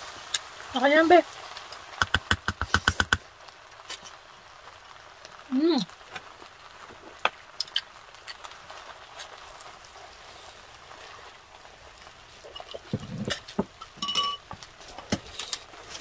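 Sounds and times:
food sizzling in a pot: 0.0s - 16.0s
utensil clicks: 2.0s - 3.2s.

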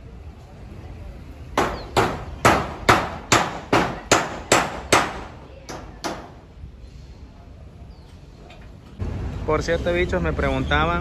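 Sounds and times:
hand hammer striking: 1.6s - 6.3s.

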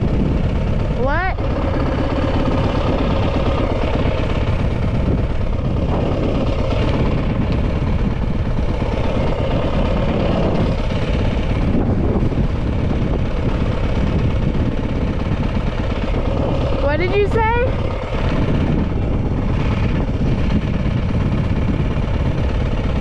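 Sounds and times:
dirt bike engine running: 0.0s - 23.0s.

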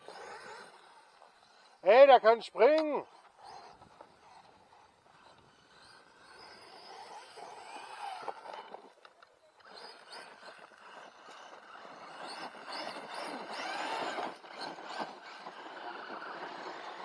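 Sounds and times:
electric motor whine revving: 0.0s - 1.9s, 2.6s - 17.0s
tyres scrabbling on gravel: 9.7s - 17.0s.

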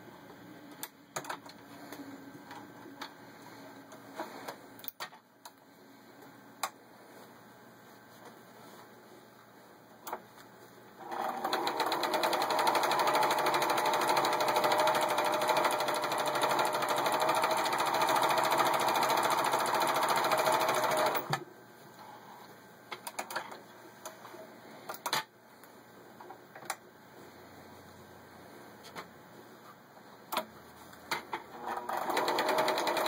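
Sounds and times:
sewing machine stitching: 11.0s - 21.4s, 31.5s - 33.0s.

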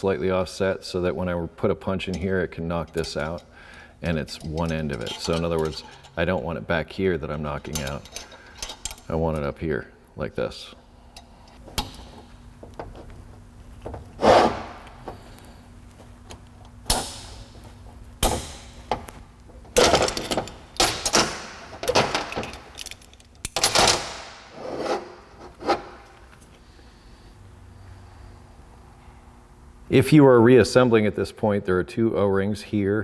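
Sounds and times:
metal clamps clanking and scraping: 2.0s - 6.6s, 7.3s - 9.4s.

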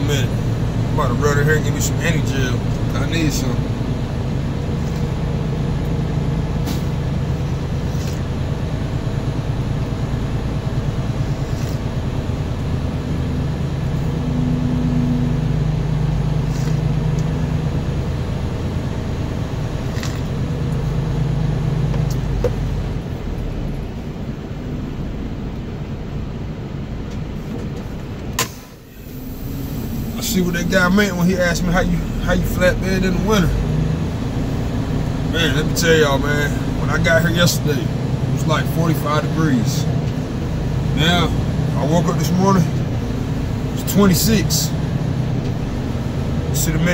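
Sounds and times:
diesel truck engine running: 0.0s - 46.9s.

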